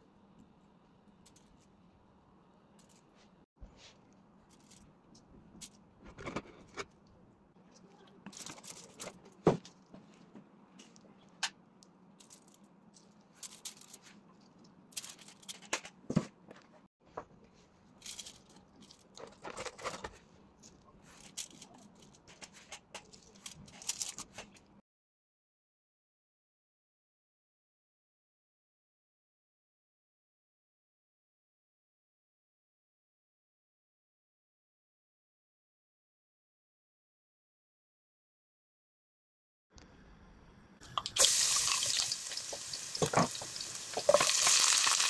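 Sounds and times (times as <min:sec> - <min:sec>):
aluminium foil crinkling: 0:07.7 - 0:09.4, 0:12.2 - 0:15.8, 0:18.0 - 0:24.7, 0:41.2 - 0:45.0.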